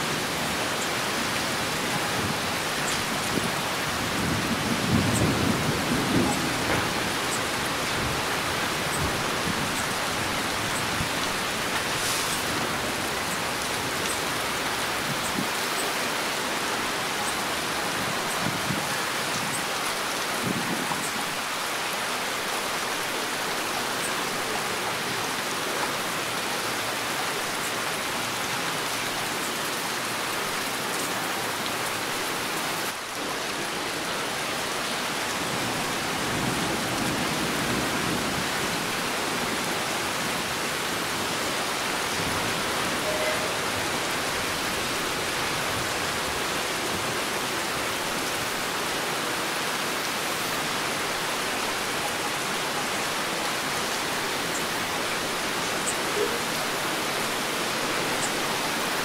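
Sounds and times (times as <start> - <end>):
heavy rain falling: 0.0 - 59.0
distant thunder rumble: 3.1 - 10.1.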